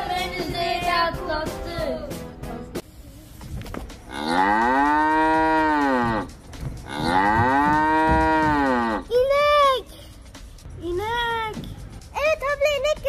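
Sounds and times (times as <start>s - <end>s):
cow mooing: 4.1s - 9.1s.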